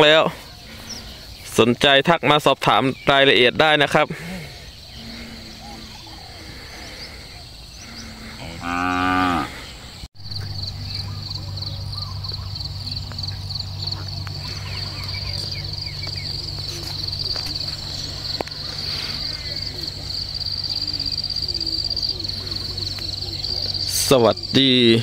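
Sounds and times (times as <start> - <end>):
insects trilling: 0.0 - 25.0
water buffalo mooing: 7.8 - 9.7.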